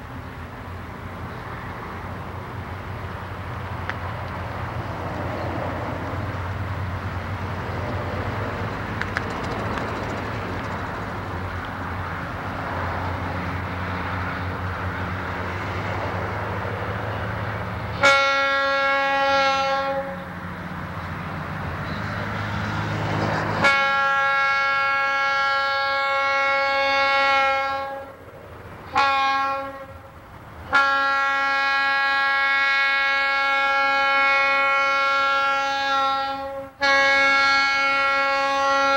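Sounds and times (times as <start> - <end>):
diesel locomotive rumbling: 0.0 - 38.9
train air horn blasts: 17.9 - 20.4, 23.6 - 28.2, 28.9 - 38.9.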